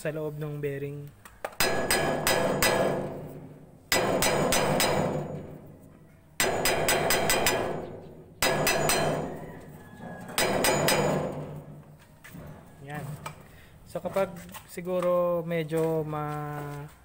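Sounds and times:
hammer blows on metal: 1.6s - 12.0s
metal pulley ringing: 3.9s - 11.7s.

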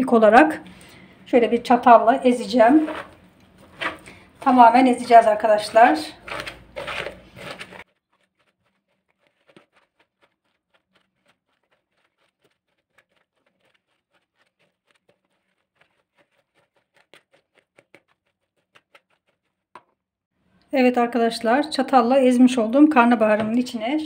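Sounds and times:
fork mashing in plastic bowl: 2.3s - 19.9s.

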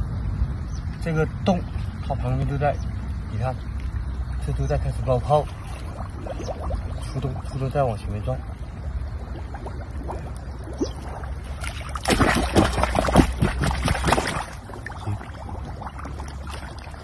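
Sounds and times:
hands splashing in muddy water: 9.2s - 17.0s.

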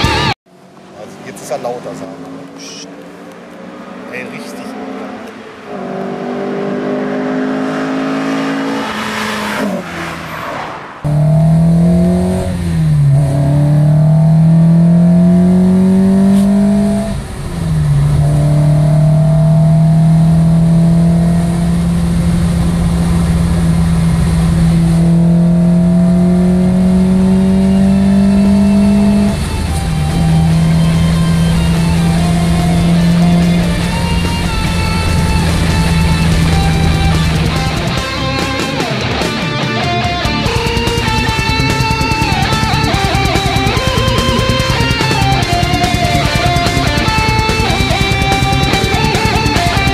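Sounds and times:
car engine revving and passing: 0.0s - 49.9s
car engine accelerating from inside: 1.0s - 9.8s, 11.0s - 38.2s.

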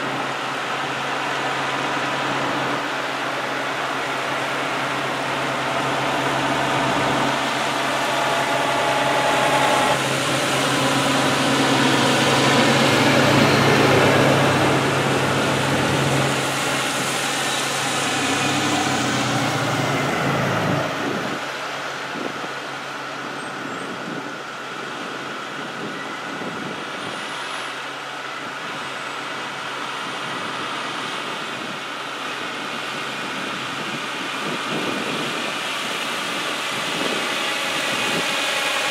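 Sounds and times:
diesel trucks driving past: 0.0s - 22.1s.

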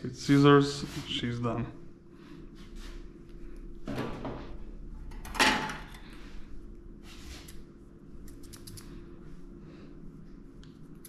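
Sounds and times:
grooming scissors snipping: 8.2s - 8.9s.

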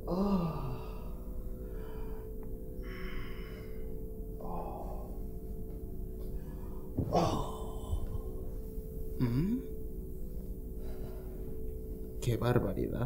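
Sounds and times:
low moan: 0.0s - 10.1s
gasping breaths: 6.4s - 8.4s.

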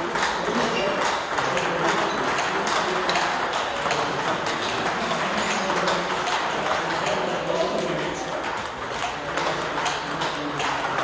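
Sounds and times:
room noise: 0.0s - 11.0s
table tennis ball clicking: 0.1s - 11.0s.

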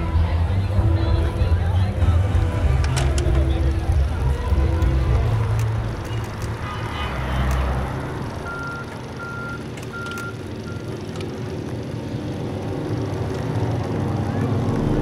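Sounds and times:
outdoor background noise: 0.0s - 15.0s
vehicle reversing alarm beeping: 8.4s - 11.0s
deep low rumble: 13.1s - 15.0s.

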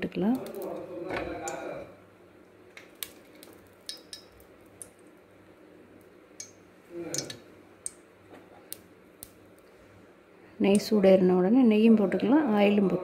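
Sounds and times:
ghee ticking and popping: 0.0s - 1.8s, 2.4s - 9.7s, 10.6s - 11.0s.

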